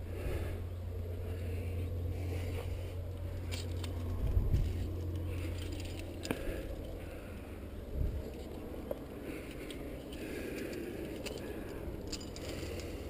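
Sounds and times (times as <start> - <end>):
low rumble: 0.0 - 13.0
gear scraping against rock: 2.4 - 7.3.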